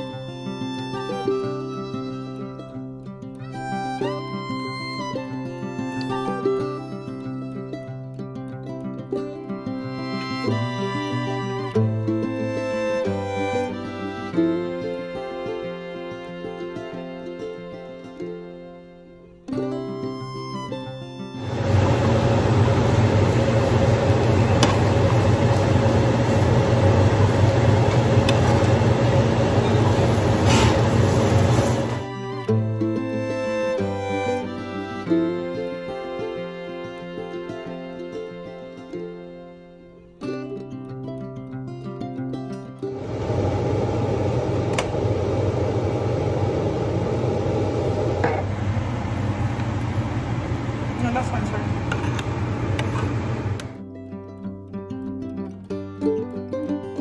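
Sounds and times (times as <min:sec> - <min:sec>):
range hood fan running: 0:21.3 - 0:32.2, 0:42.8 - 0:53.8
loud whirring hum: 0:21.4 - 0:32.1, 0:42.9 - 0:53.8
hiss: 0:21.6 - 0:32.0.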